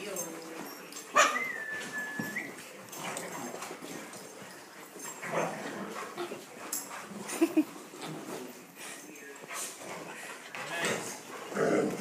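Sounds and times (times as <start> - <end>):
dog whining: 1.2 - 2.6.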